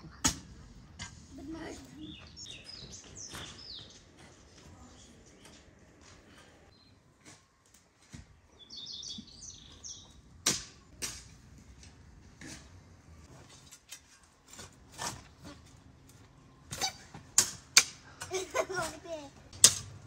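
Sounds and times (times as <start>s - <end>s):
bird chirps: 2.0s - 5.6s, 8.5s - 10.2s
spades and hoe striking soil: 10.4s - 20.0s.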